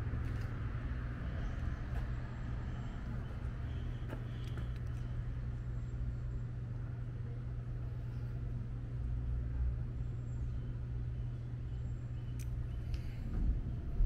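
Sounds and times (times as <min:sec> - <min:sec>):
vehicle engine humming: 0:00.0 - 0:07.0.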